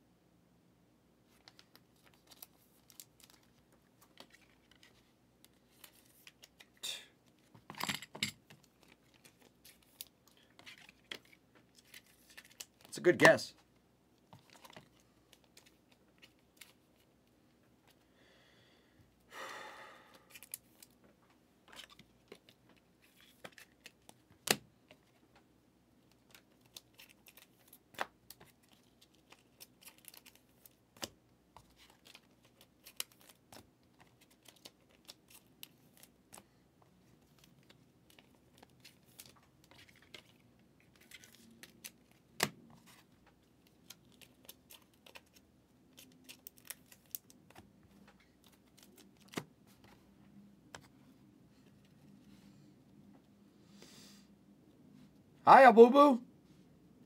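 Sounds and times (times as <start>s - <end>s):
pack wrapper rustling: 26.1s - 30.8s.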